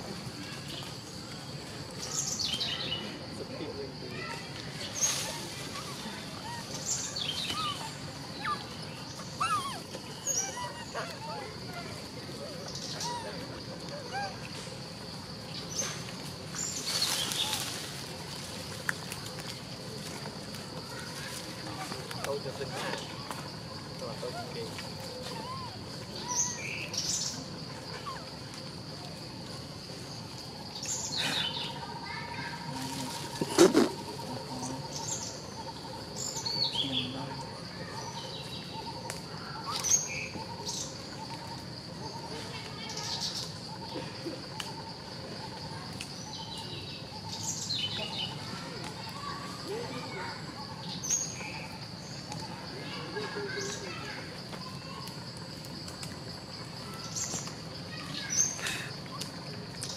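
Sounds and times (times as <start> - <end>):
insects droning: 0.0 - 59.9
birds chirping: 0.6 - 17.8, 18.6 - 28.9.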